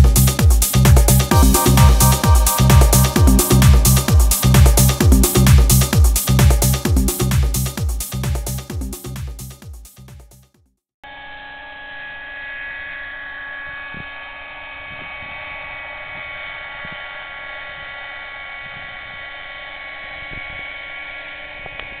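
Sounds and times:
model helicopter engine and rotors whining: 0:11.1 - 0:22.0.

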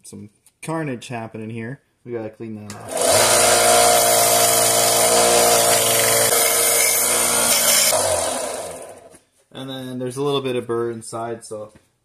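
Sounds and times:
belt sander grinding metal: 0:02.7 - 0:09.2.

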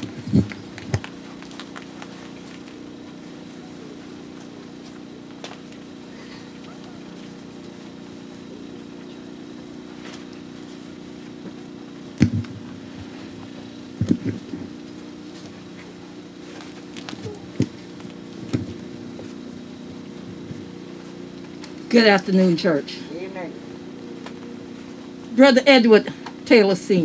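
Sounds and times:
microphone bumps and knocks: 0:00.0 - 0:01.1, 0:12.2 - 0:14.8, 0:17.1 - 0:19.3
steady low hum: 0:00.0 - 0:27.0.

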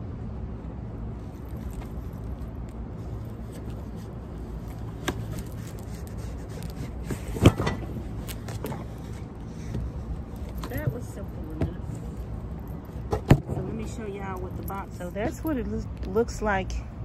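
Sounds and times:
steady low rumble: 0:00.0 - 0:17.0
cardboard scraping and rubbing: 0:03.3 - 0:10.0.

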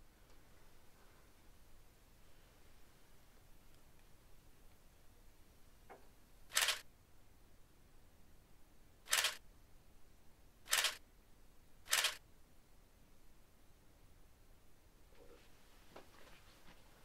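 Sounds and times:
camera shutter clicking: 0:06.5 - 0:06.8, 0:09.1 - 0:09.4, 0:10.7 - 0:11.0, 0:11.9 - 0:12.2.

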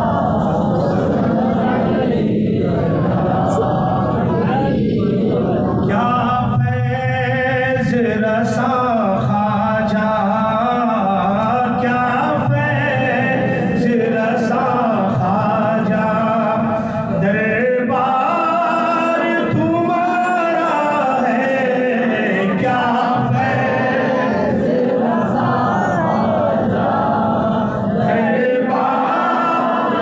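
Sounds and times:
man singing devotional hymn: 0:05.4 - 0:24.9, 0:27.4 - 0:30.0.

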